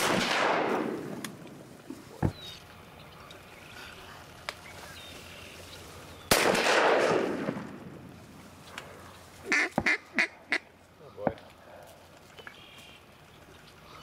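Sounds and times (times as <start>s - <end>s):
shotgun blast: 0.0s - 1.3s, 6.3s - 8.0s
duck quacks: 9.4s - 10.7s.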